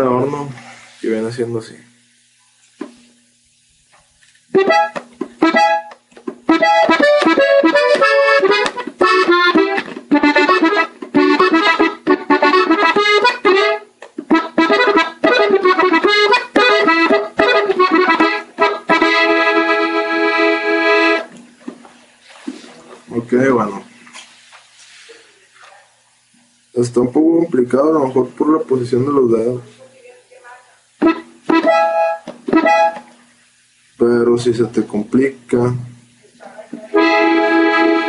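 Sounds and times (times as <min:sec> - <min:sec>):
button accordion playing: 0:04.6 - 0:21.3, 0:31.0 - 0:33.1, 0:36.9 - 0:38.0.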